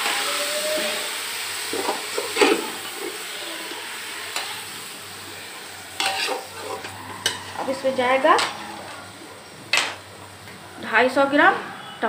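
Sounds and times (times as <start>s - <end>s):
meat and onions sizzling: 0.0s - 11.4s
metal spoon scraping a pot: 6.0s - 9.0s.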